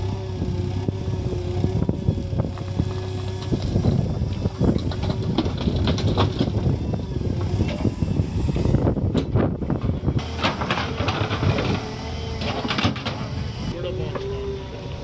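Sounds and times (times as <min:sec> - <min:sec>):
diesel engine under load: 0:00.0 - 0:15.0
soil and stones clattering: 0:02.5 - 0:06.6, 0:09.8 - 0:13.4.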